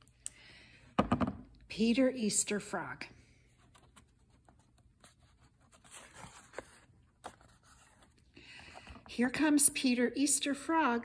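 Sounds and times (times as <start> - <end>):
book page turning: 3.5 - 8.3.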